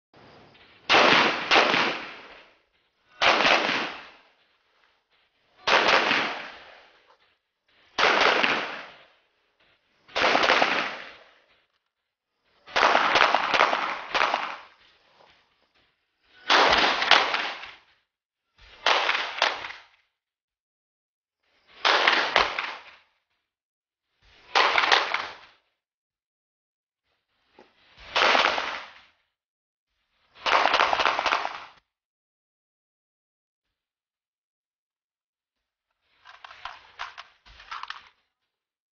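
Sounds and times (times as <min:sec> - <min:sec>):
gunshots echoing: 0:00.5 - 0:11.6, 0:12.7 - 0:14.9, 0:16.4 - 0:17.9, 0:18.7 - 0:19.9, 0:21.7 - 0:23.0, 0:24.4 - 0:25.6, 0:28.0 - 0:29.1, 0:30.4 - 0:31.8.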